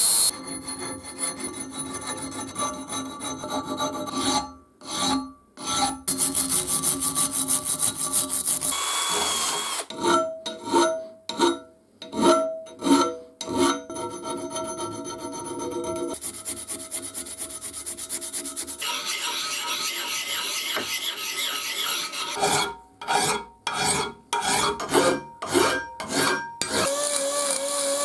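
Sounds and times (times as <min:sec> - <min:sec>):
small file strokes on steel: 0:00.0 - 0:08.8, 0:09.9 - 0:27.6
flat file strokes along edges: 0:06.1 - 0:08.8, 0:13.5 - 0:27.3
wire brush scrubbing: 0:16.2 - 0:22.5.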